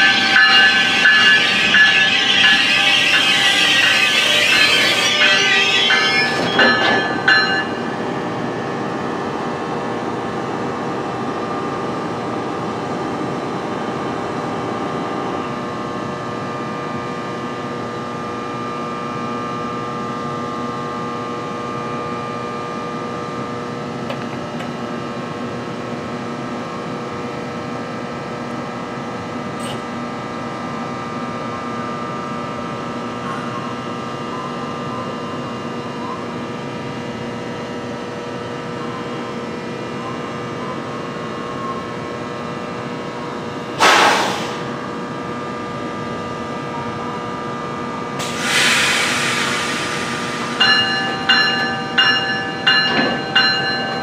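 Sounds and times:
train brakes squeaking: 0.0s - 8.0s, 48.2s - 54.0s
train equipment humming: 0.0s - 25.9s, 26.6s - 54.0s.

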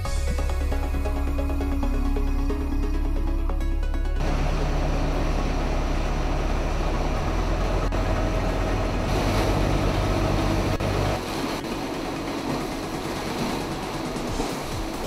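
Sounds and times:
low hum: 0.7s - 15.0s
heavy industrial machinery running: 4.2s - 15.0s.

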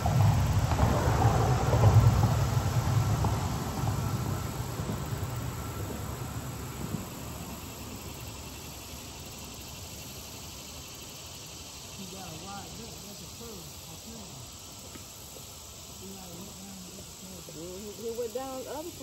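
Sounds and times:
passing vehicle engine: 0.0s - 7.6s
insects chirring: 0.0s - 19.0s.

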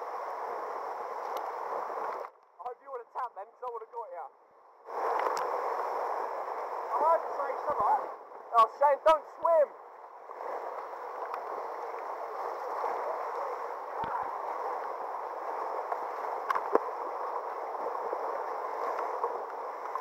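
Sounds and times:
whitewater rushing: 4.9s - 20.0s.

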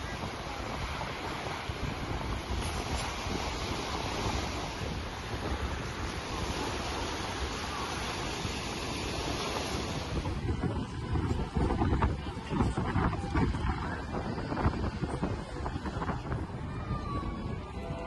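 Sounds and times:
waves on pebble beach: 0.0s - 11.7s
wind buffeting microphone: 0.0s - 18.0s.

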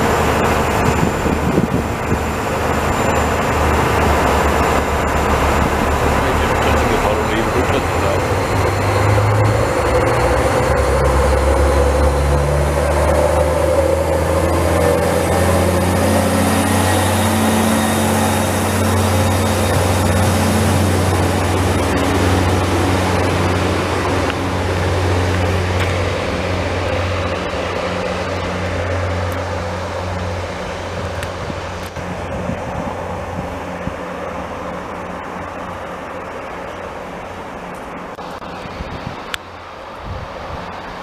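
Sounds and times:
train diesel engines running: 0.0s - 41.0s.

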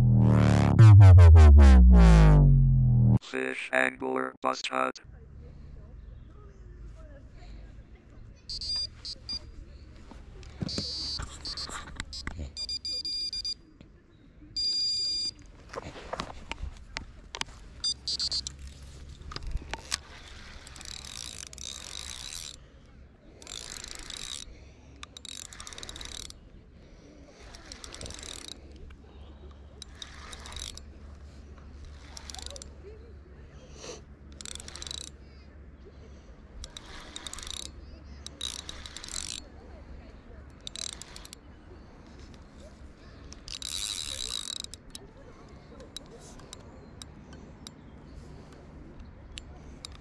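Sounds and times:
fishing reel clicking and whirring: 8.5s - 9.3s, 10.7s - 13.1s, 17.8s - 22.7s, 23.4s - 26.4s, 27.3s - 28.9s, 29.8s - 31.2s, 31.8s - 32.8s, 34.3s - 35.2s, 36.6s - 39.6s, 40.5s - 41.5s, 43.3s - 45.0s, 49.7s - 50.0s
electronic bite alarm beeping: 8.5s - 9.5s, 10.7s - 13.6s, 14.6s - 15.3s, 17.8s - 18.5s.

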